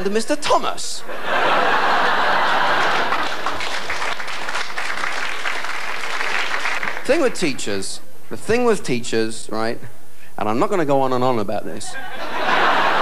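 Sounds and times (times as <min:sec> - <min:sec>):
audience applauding: 0:02.0 - 0:07.4.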